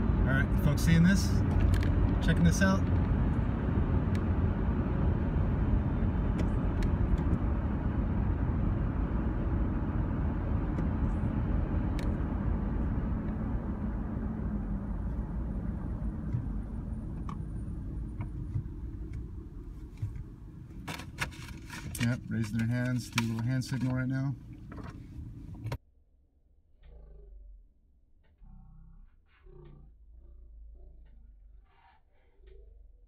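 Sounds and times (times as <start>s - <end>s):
road and engine noise inside car: 0.0s - 25.8s.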